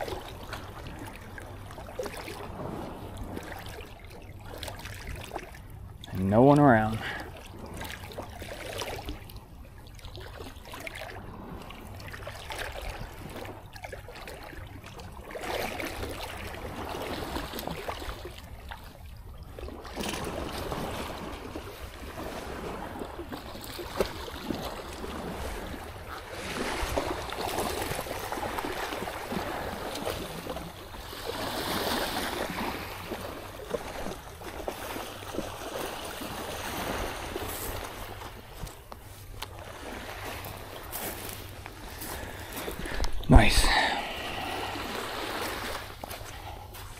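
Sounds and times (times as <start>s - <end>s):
surf washing onto beach: 41.9s - 46.9s.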